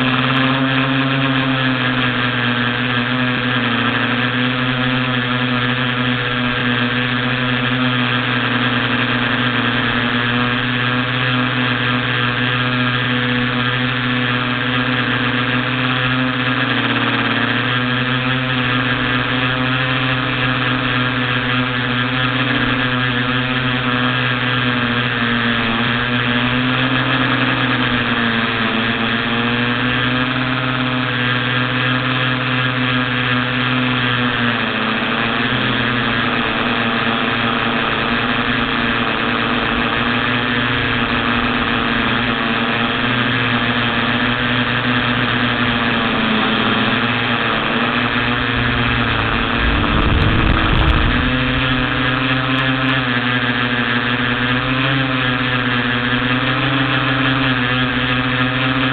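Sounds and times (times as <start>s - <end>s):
quadcopter motors whining: 0.0s - 58.9s
low rumble: 48.1s - 52.8s.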